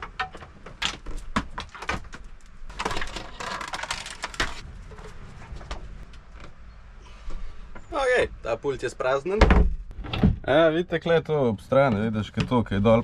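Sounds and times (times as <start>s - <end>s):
items knocking and clicking: 0.0s - 5.0s.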